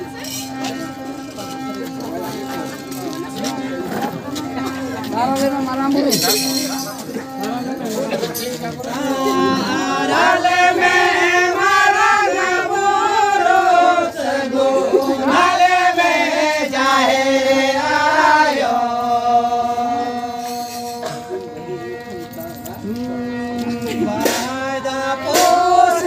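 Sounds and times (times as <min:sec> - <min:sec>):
harmonium: 0:00.0 - 0:26.0
men singing: 0:08.8 - 0:21.4, 0:22.8 - 0:26.0.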